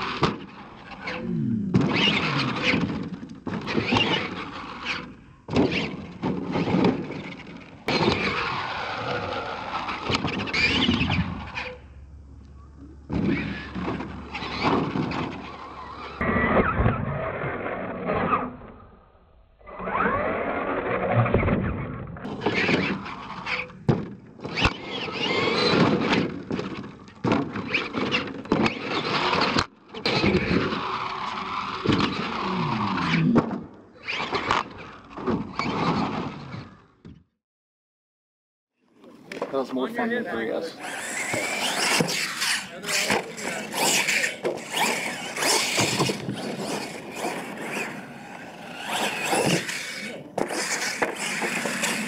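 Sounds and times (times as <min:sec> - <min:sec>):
toy truck electric motors whining: 0:00.8 - 0:12.0, 0:24.4 - 0:26.8, 0:27.5 - 0:33.3, 0:40.6 - 0:52.0
toy truck landing thuds: 0:23.5 - 0:30.8, 0:40.8 - 0:52.0.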